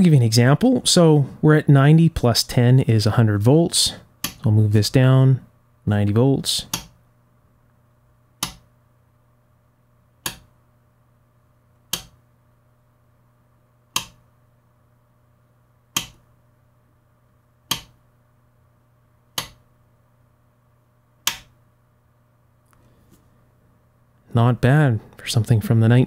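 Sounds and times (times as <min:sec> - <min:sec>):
rotary switch clicking: 0:04.2 - 0:04.4, 0:06.7 - 0:07.0, 0:08.4 - 0:08.7, 0:10.2 - 0:10.5, 0:11.9 - 0:12.2, 0:13.9 - 0:14.2, 0:15.9 - 0:16.3, 0:17.7 - 0:18.0, 0:19.3 - 0:19.6, 0:21.2 - 0:21.6.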